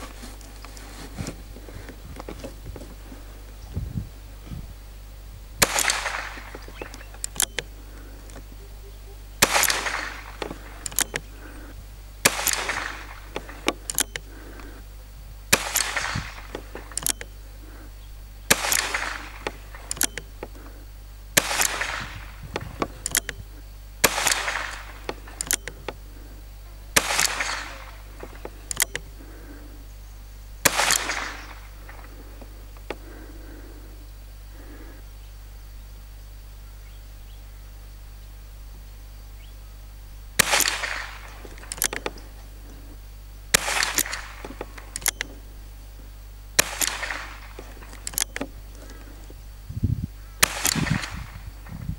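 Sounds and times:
gunshots with echo: 5.6 - 8.5, 9.4 - 14.8, 15.5 - 17.8, 18.5 - 23.4, 24.0 - 29.8, 30.6 - 33.8, 40.4 - 42.9, 43.5 - 45.4, 46.6 - 48.2, 50.4 - 51.7
faint sharp clicks: 5.6 - 8.6, 21.4 - 29.8, 40.4 - 45.4.

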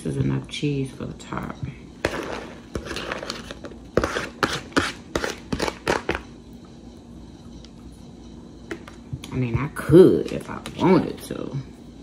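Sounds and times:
paper plate tapping and scraping: 2.0 - 6.3.

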